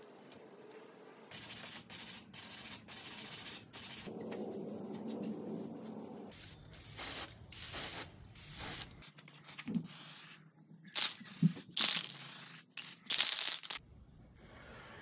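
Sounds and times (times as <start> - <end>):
aerosol spray can hissing: 6.8 - 9.0, 9.9 - 13.8.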